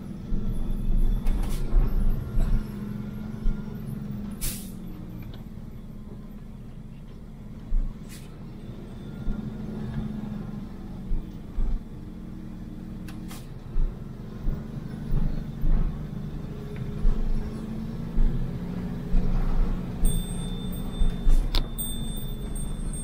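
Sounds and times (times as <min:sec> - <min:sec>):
vehicle engine running: 0:00.0 - 0:23.0
low thumps from bumps: 0:13.7 - 0:19.8.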